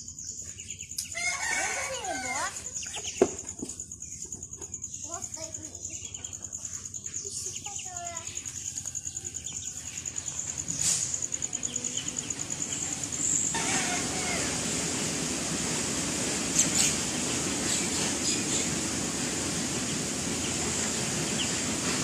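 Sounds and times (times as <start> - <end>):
ducklings peeping: 0.0 - 1.4, 2.5 - 8.6, 9.4 - 14.7, 16.5 - 21.8
insect trill: 0.0 - 15.5
steady rushing noise: 12.2 - 22.0.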